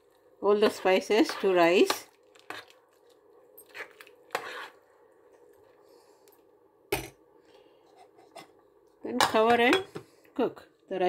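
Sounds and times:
faint steady hum: 0:00.0 - 0:11.0
spoon swishing rice and water: 0:00.6 - 0:04.9.

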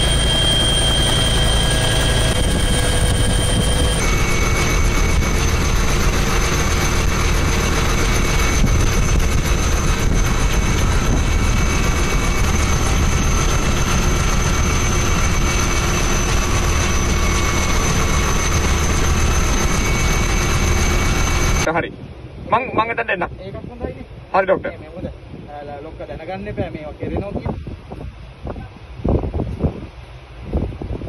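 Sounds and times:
aircraft engine drone: 0:00.0 - 0:23.4.

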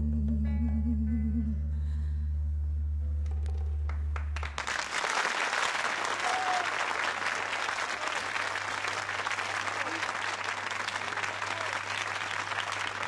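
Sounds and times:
audience applause: 0:03.9 - 0:13.0.

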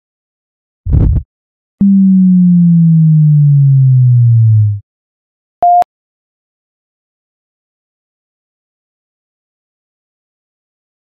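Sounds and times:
low noisy thud: 0:00.9 - 0:01.2
sine tone sliding down: 0:01.8 - 0:04.8
brief high beep: 0:05.6 - 0:05.9.

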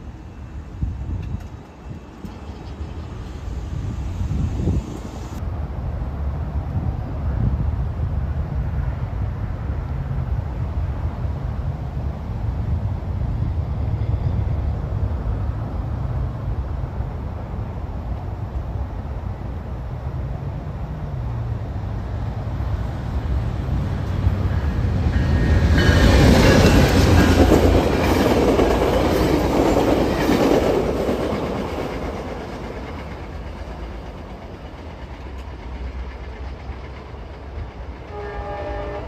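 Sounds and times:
train wheels clattering over rails: 0:23.7 - 0:38.4.

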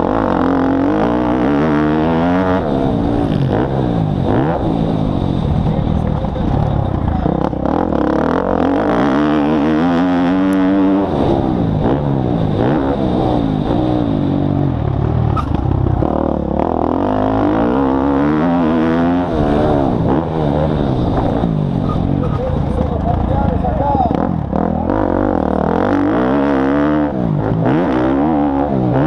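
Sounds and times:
dirt bike engine revving: 0:00.0 - 0:29.0.

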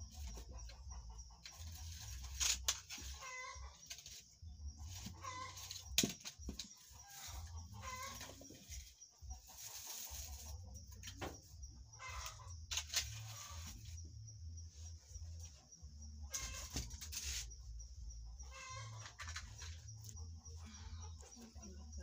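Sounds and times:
chickens clucking: 0:00.0 - 0:02.3, 0:03.0 - 0:05.9, 0:06.5 - 0:12.6, 0:18.0 - 0:22.0.

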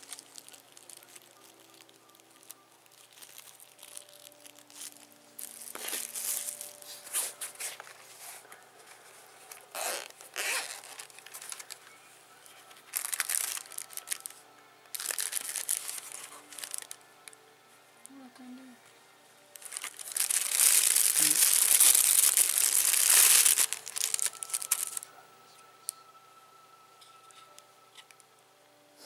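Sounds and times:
plastic bag crinkling: 0:00.0 - 0:17.0, 0:19.6 - 0:25.1.

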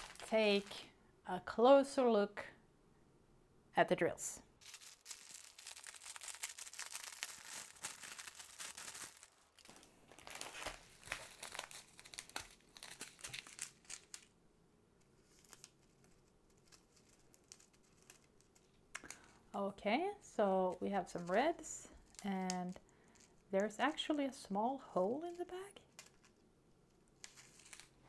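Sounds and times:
plastic wrap crinkling: 0:00.0 - 0:00.9, 0:04.6 - 0:14.3, 0:15.1 - 0:19.5, 0:20.7 - 0:24.1, 0:25.2 - 0:28.0.

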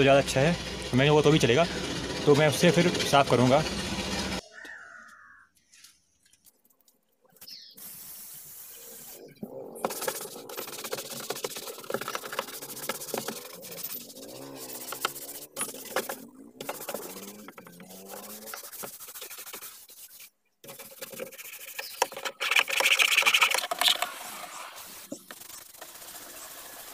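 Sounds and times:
foam spray hiss: 0:07.8 - 0:09.3, 0:24.2 - 0:26.9
brush scrubbing plastic: 0:09.0 - 0:26.9.

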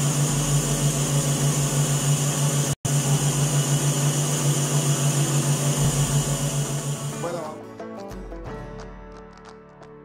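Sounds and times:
stand mixer whipping cream: 0:00.0 - 0:07.2.

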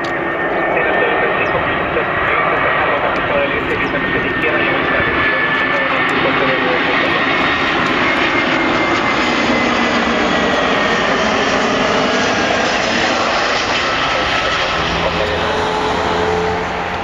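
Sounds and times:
faint high engine whine: 0:00.0 - 0:17.0
jet engines roaring: 0:00.0 - 0:17.0.

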